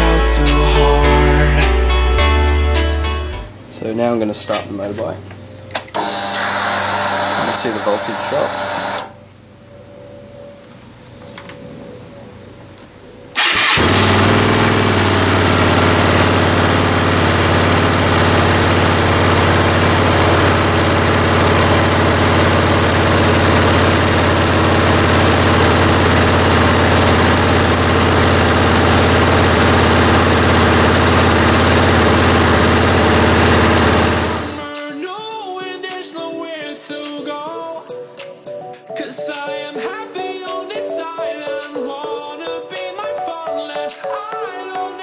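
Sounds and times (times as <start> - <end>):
fuel pump humming: 13.4 - 34.7
motorcycle engine idling: 13.4 - 34.7.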